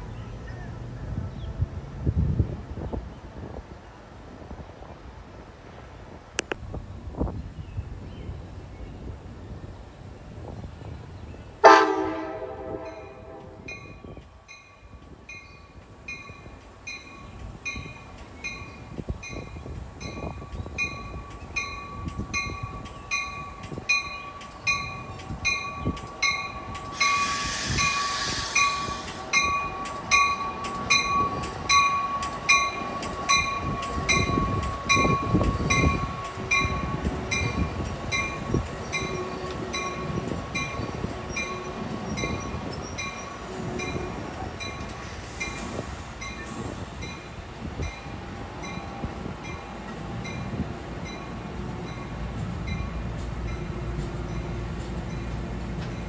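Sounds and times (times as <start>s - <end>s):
train rumble: 0.0s - 56.0s
train horn blast: 11.6s - 13.7s
locomotive bell ringing: 12.8s - 55.4s
air hiss: 26.8s - 29.5s, 44.9s - 46.9s.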